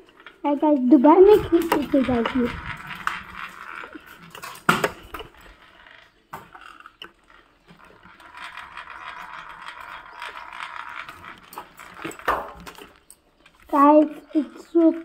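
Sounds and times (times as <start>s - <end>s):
scooter wheels rolling on tiles: 0.0s - 15.0s
kick scooter knocking: 1.0s - 5.5s, 8.9s - 13.0s.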